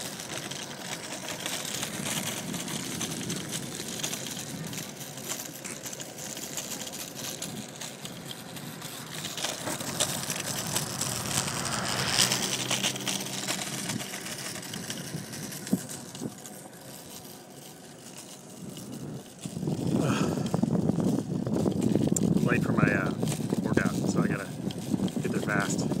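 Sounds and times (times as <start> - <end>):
scooter wheels rolling on pavement: 0.0 - 26.0.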